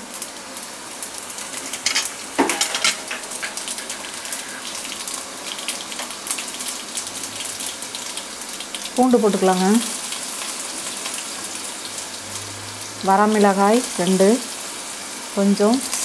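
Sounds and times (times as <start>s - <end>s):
seeds popping in hot oil: 1.3s - 6.8s.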